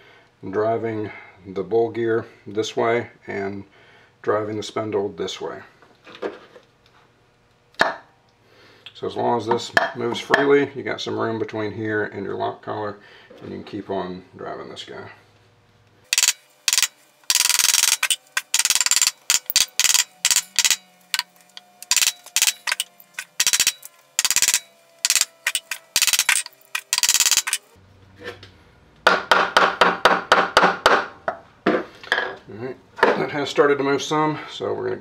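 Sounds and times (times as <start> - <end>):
hammer striking metal: 16.1 - 27.6.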